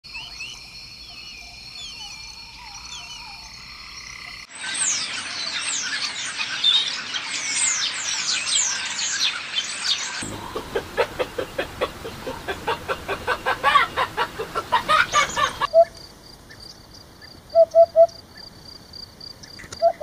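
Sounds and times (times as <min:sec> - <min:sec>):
whistled bird calls: 0:00.1 - 0:03.6, 0:04.5 - 0:16.0, 0:17.5 - 0:18.2, 0:19.7 - 0:20.0
flock of small birds chirping: 0:00.1 - 0:17.4.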